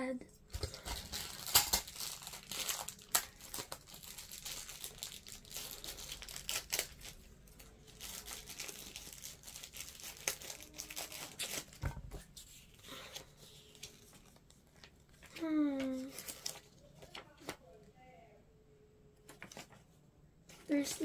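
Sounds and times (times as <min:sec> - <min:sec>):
plastic bag crinkling: 0:00.6 - 0:11.8, 0:13.6 - 0:17.5.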